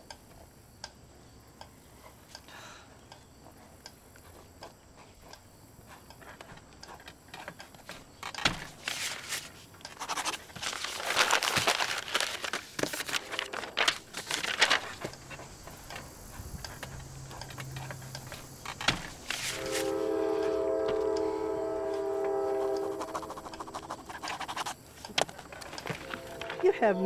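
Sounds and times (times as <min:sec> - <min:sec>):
paper crumpling: 0:08.7 - 0:15.5, 0:19.2 - 0:19.9
pen strokes on paper: 0:22.3 - 0:24.8.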